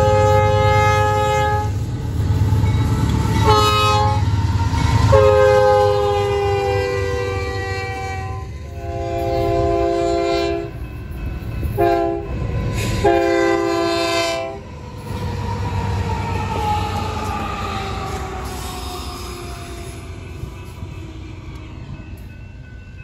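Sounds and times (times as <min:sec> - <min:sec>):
locomotive horn blasts: 0:00.0 - 0:01.8, 0:03.4 - 0:04.3, 0:05.1 - 0:10.8, 0:11.8 - 0:14.6
falling whine of passing locomotives: 0:00.0 - 0:23.0.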